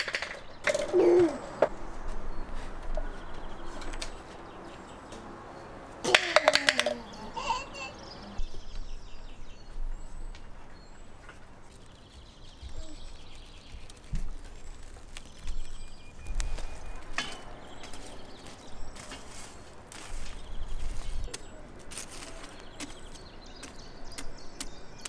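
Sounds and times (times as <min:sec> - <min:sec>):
birds chirping: 0:00.0 - 0:25.0
metal skewers clinking: 0:16.8 - 0:23.2.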